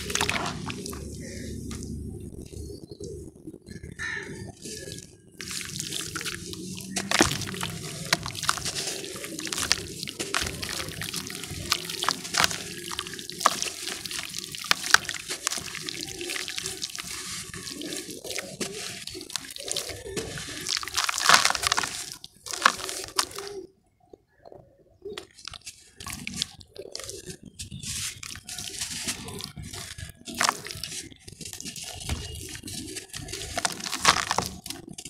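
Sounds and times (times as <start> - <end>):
ash falling into water: 0.0 - 1.0
ash crackling as crushed: 5.4 - 23.5, 31.6 - 35.0.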